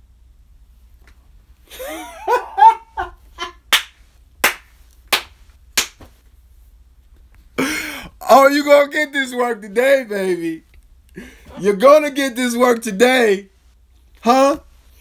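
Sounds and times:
slow hand claps: 0:03.7 - 0:06.2
man's wordless exclamation: 0:08.1 - 0:10.6, 0:11.5 - 0:13.5, 0:14.2 - 0:14.7.

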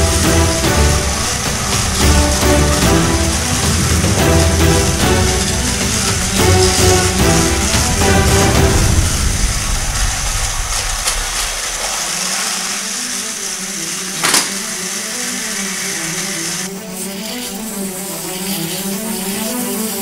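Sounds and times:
background music: 0:00.0 - 0:20.0
toy train motors whirring: 0:00.0 - 0:20.0
sharp clack: 0:14.2 - 0:14.6.

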